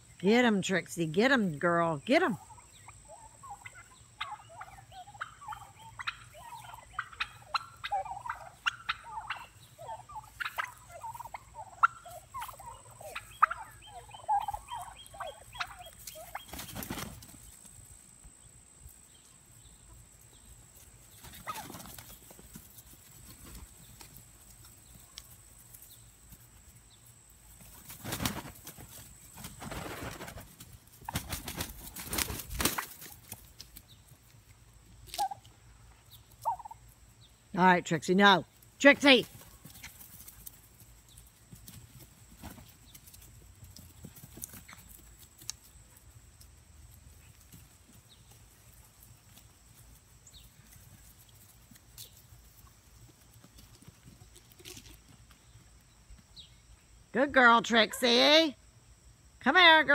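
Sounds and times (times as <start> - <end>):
turkeys calling: 2.0 - 17.7, 19.2 - 45.8.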